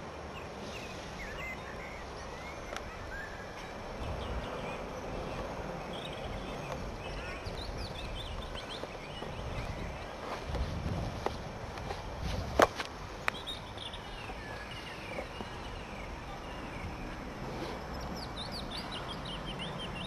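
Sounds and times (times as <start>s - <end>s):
small birds chirping: 0.0s - 20.0s
wind noise rumble: 3.8s - 5.4s, 6.2s - 13.2s.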